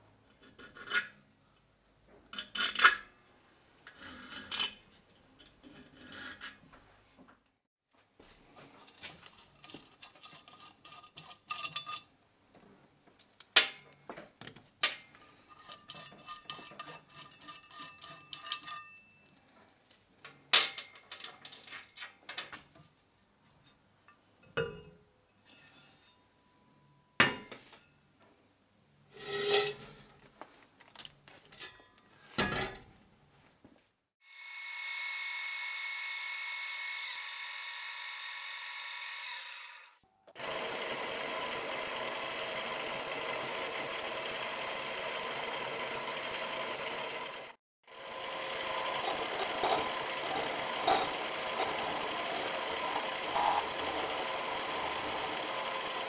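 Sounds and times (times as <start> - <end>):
metal bracket clinking and scraping: 8.8 - 12.2, 15.3 - 19.4, 29.2 - 30.1, 48.7 - 56.0
milling machine spindle whining: 34.4 - 56.0.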